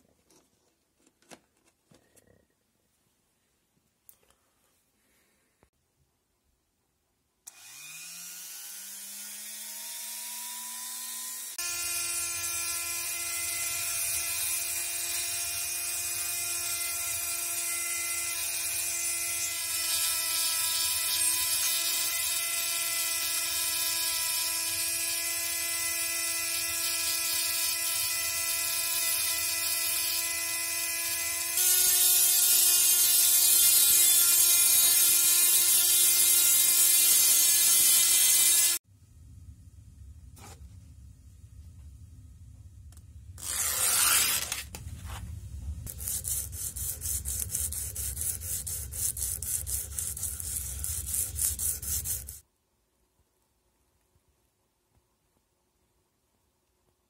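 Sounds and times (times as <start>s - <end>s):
rotary grinder motor whine: 7.5s - 16.3s.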